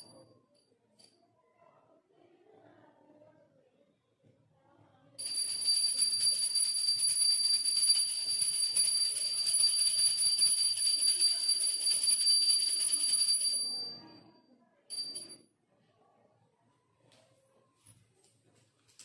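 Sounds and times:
hand bell ringing: 0:05.2 - 0:14.2, 0:14.9 - 0:15.4.

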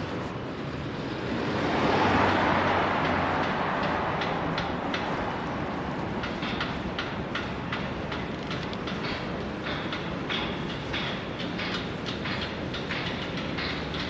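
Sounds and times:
car passing: 0:00.7 - 0:06.8.

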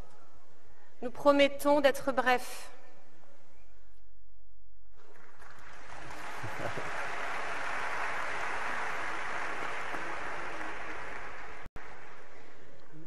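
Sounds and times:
audience applauding: 0:05.0 - 0:12.4.

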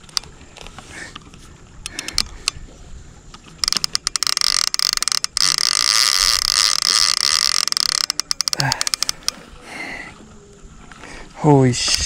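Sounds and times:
fishing reel drag buzzing: 0:01.9 - 0:02.6, 0:03.4 - 0:09.5.

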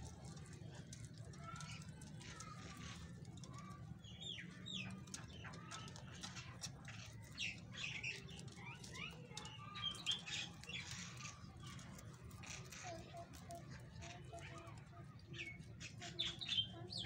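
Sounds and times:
rabbits chewing greens: 0:00.0 - 0:17.0
small birds chirping: 0:00.0 - 0:17.0.

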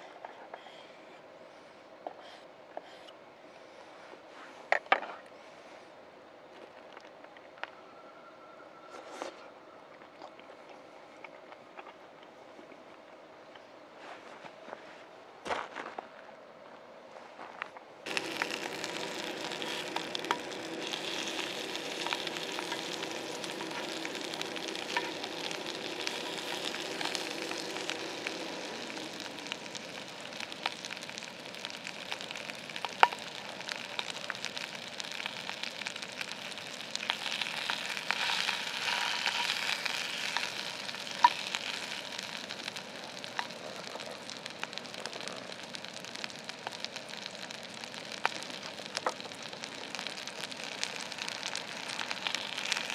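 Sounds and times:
fat popping: 0:18.1 - 0:52.9
meat sizzling in a pan: 0:18.1 - 0:52.9.

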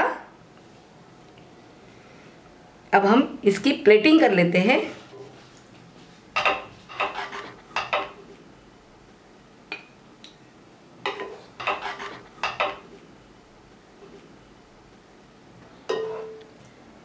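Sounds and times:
wooden spatula scraping a pot: 0:06.4 - 0:08.2, 0:11.1 - 0:12.9.

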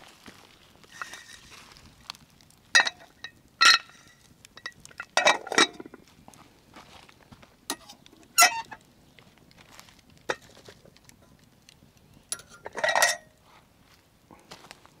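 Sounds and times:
metal cookware clinking: 0:00.9 - 0:01.4, 0:02.8 - 0:06.0, 0:12.3 - 0:13.3.

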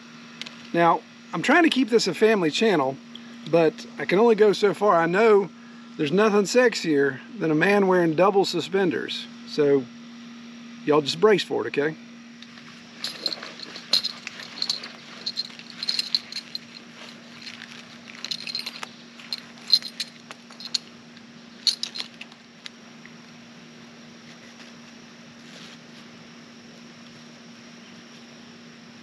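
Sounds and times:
faint steady hum: 0:00.0 - 0:29.0
buckles and clips jangling: 0:12.4 - 0:20.9, 0:21.6 - 0:22.4.

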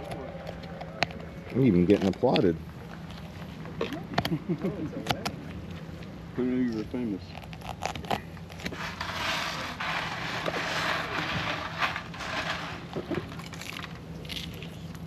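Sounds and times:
knife scraping through fish scales: 0:07.6 - 0:14.6.

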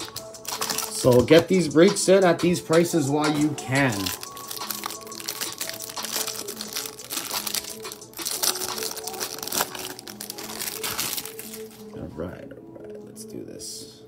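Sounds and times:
plastic wrapper crinkling: 0:00.0 - 0:01.4, 0:03.9 - 0:11.9.

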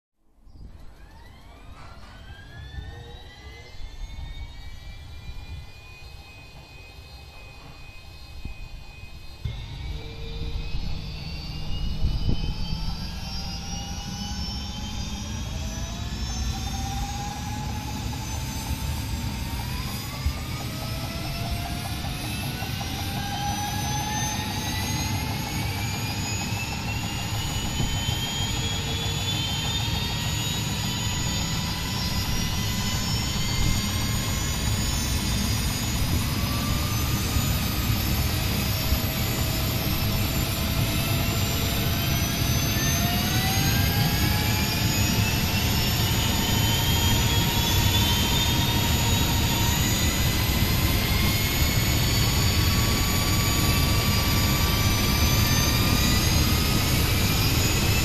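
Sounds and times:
motor and gear whine: 0:00.5 - 0:58.0
helicopter rotor rushing: 0:00.6 - 0:58.0.

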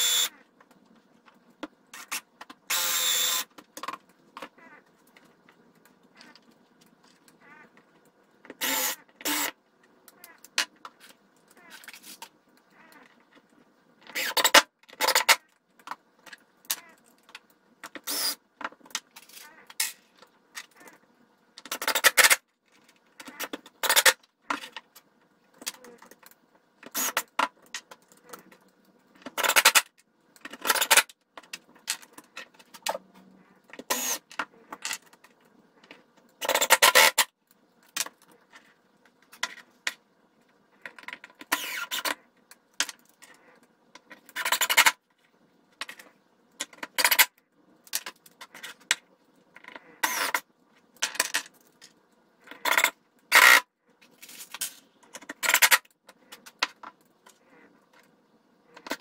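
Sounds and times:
cordless drill running in bursts: 0:00.0 - 0:00.3, 0:02.7 - 0:03.4.

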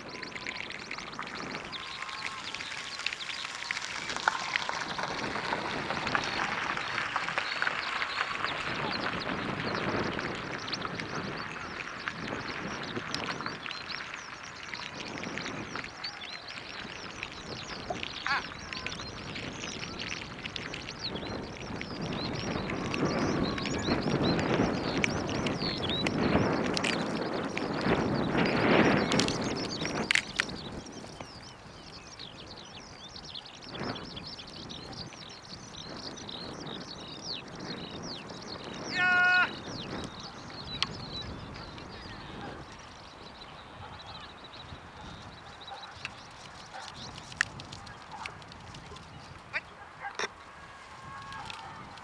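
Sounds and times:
wild birds chirping: 0:00.0 - 0:52.0
louder lower bird call: 0:38.9 - 0:39.6.

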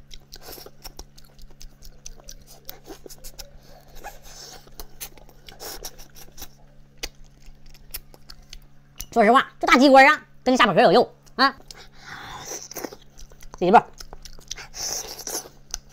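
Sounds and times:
chewing clicks: 0:00.0 - 0:09.2, 0:11.2 - 0:11.9, 0:12.7 - 0:15.9
lip smacks: 0:00.1 - 0:09.1.

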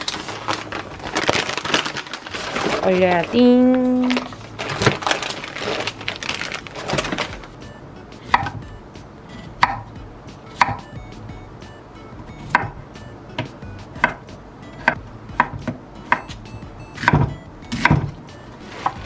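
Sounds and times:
light background music: 0:00.0 - 0:19.0
knife chopping on cutting board: 0:08.2 - 0:08.6, 0:09.6 - 0:09.9, 0:10.6 - 0:10.9, 0:12.5 - 0:12.8, 0:13.4 - 0:16.4, 0:17.0 - 0:18.1.

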